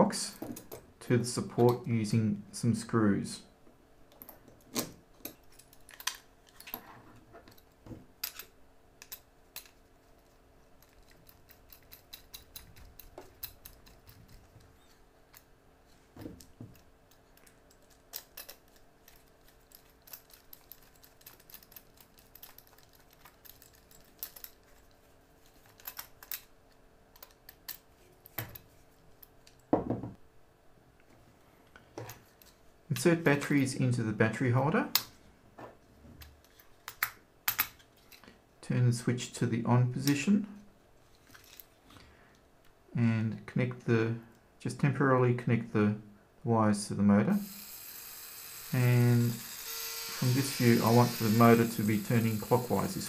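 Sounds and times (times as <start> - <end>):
metal parts clicking and rattling: 4.1 - 15.5, 16.4 - 29.6, 41.2 - 41.8
screwdriver driving screws: 48.6 - 52.9.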